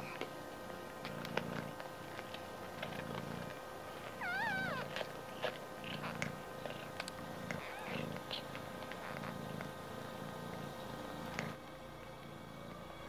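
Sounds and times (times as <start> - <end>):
cat purring: 0.0 - 13.0
kitten mewing: 4.2 - 6.2.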